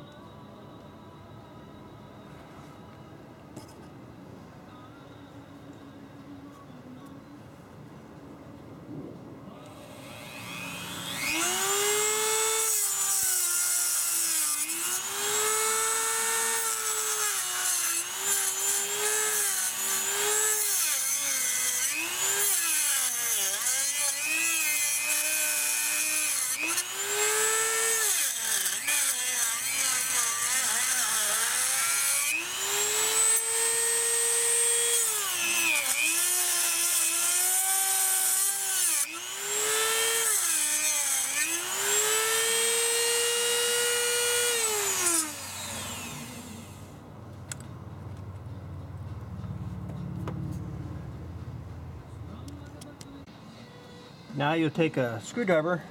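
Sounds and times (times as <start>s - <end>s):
rotary tool whining: 9.6s - 47.6s.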